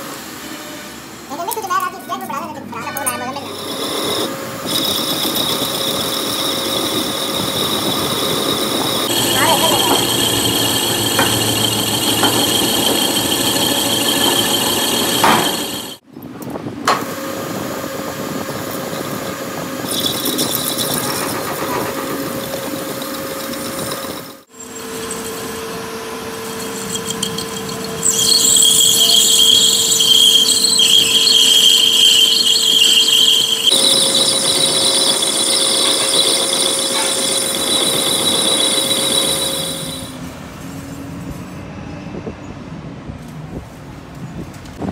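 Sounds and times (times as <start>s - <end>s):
cutting tool squealing on metal: 3.0s - 16.0s, 19.8s - 40.2s
metal lathe running: 3.0s - 16.0s, 18.4s - 40.2s.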